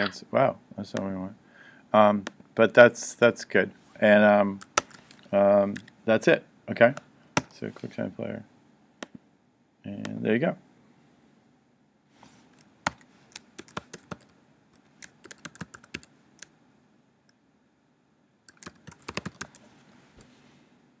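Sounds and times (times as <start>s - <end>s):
keyboard typing: 4.6s - 6.0s, 12.6s - 16.5s, 18.5s - 19.7s.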